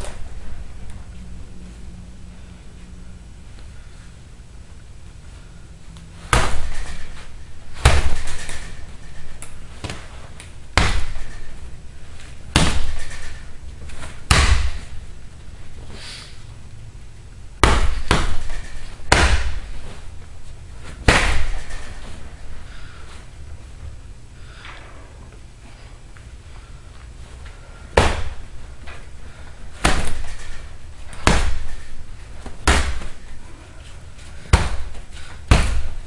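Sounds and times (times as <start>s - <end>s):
fists hitting punching bag: 6.2s - 10.1s, 10.7s - 11.6s, 12.4s - 15.0s, 17.6s - 20.0s, 20.8s - 22.2s, 27.9s - 28.9s, 29.7s - 33.4s, 34.4s - 36.0s.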